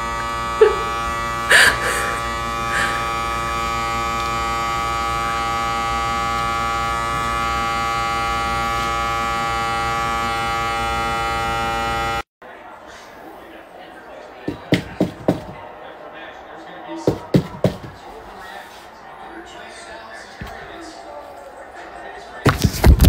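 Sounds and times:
steady electrical buzz: 0:00.0 - 0:12.2.

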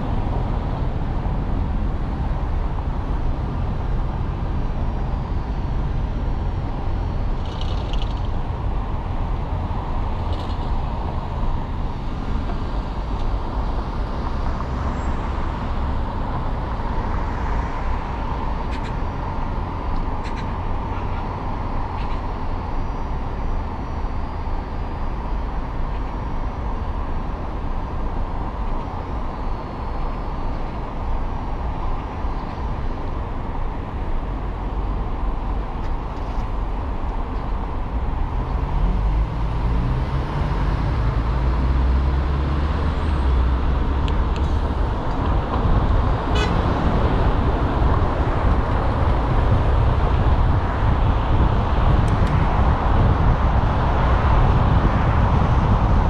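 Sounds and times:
road and tyre noise: 0:00.0 - 0:56.0
traffic noise: 0:00.0 - 0:56.0.

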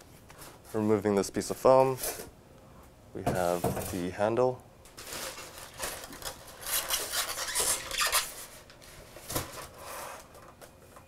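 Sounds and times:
foam wrap rustling: 0:04.9 - 0:10.8
handlebar scraping polystyrene foam: 0:05.0 - 0:08.5.

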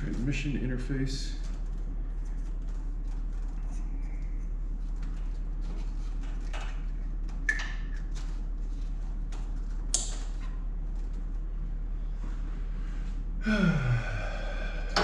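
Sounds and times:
steady low hum: 0:00.0 - 0:15.0
wiring rustling: 0:01.4 - 0:12.5.

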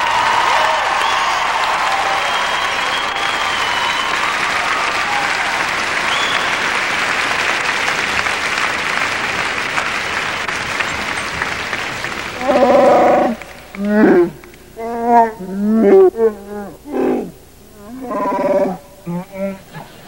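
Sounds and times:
audience applauding: 0:00.0 - 0:14.8
loud creature roar: 0:12.4 - 0:19.8.

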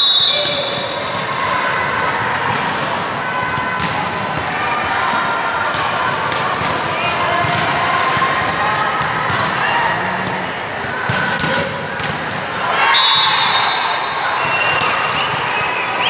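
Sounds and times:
players calling out: 0:00.3 - 0:11.9
hall chatter: 0:00.6 - 0:16.0.

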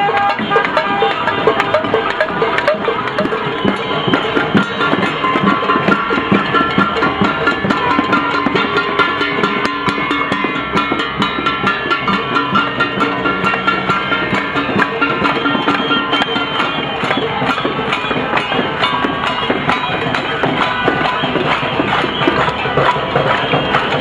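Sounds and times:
crowd banging pots and pans: 0:00.0 - 0:24.0.

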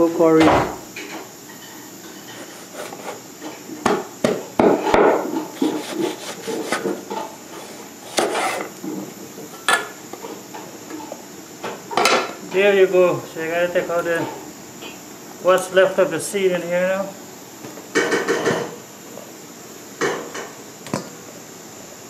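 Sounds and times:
knife chopping on wooden board: 0:02.4 - 0:03.2, 0:05.0 - 0:07.0, 0:07.6 - 0:08.7.

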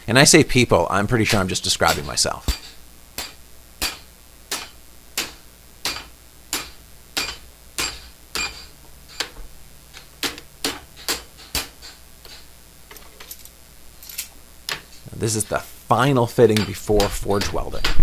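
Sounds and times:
hammer striking hot steel: 0:01.8 - 0:12.5, 0:16.3 - 0:18.0.

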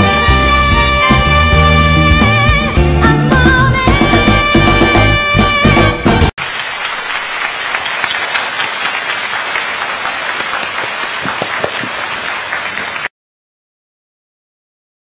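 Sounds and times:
audience applauding: 0:06.4 - 0:13.1.

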